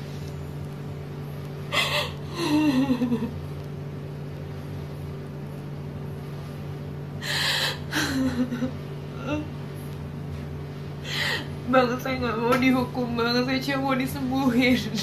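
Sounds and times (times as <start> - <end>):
woman crying: 1.7 - 3.3, 7.2 - 9.5.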